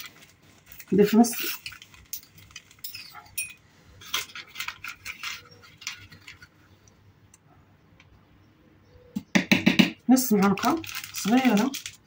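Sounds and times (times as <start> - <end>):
metal spoon scraping container: 1.0 - 6.6.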